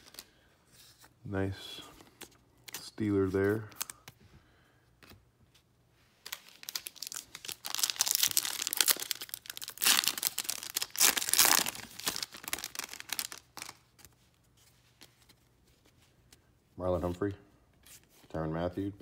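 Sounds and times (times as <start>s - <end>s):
foil wrapper tearing and crinkling: 6.3s - 13.8s.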